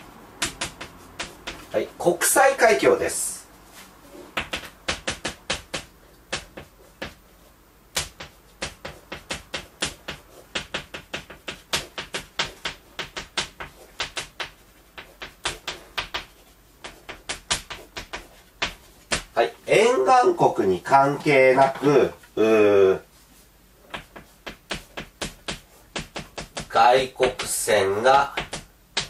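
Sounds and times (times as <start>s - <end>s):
chalk writing on chalkboard: 0.0s - 1.9s, 3.8s - 19.3s, 23.2s - 29.0s.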